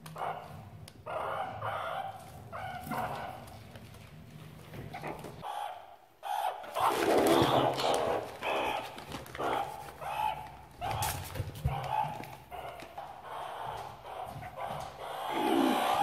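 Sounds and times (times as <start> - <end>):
meerkats scrabbling in plastic bags: 2.2 - 5.4, 6.7 - 16.0.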